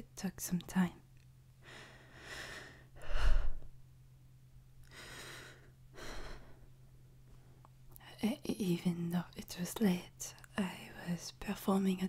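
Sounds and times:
woman breathing: 0:01.6 - 0:03.8, 0:04.8 - 0:07.7
woman whispering: 0:08.0 - 0:12.0.

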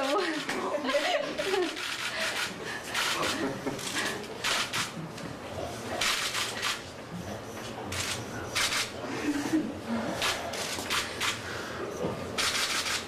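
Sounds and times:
murmur of voices: 0:00.0 - 0:13.0.

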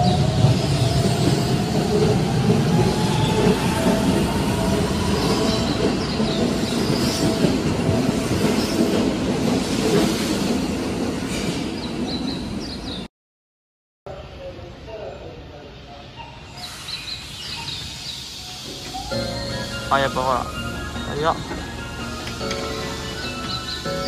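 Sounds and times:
train wheel and track rumble: 0:00.0 - 0:13.1, 0:16.2 - 0:24.0
high wheel squeals: 0:16.3 - 0:24.0.

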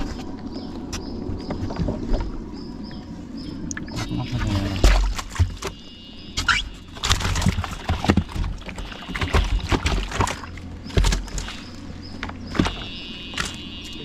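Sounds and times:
low rumble: 0:00.0 - 0:06.4
water splashing and sloshing: 0:00.0 - 0:14.0.

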